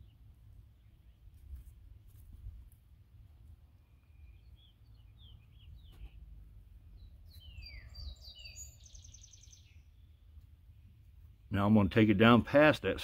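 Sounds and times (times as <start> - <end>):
songbird chirps: 0.0 - 12.4
bird trill: 7.0 - 10.2
falling whistled bird notes: 7.3 - 9.8.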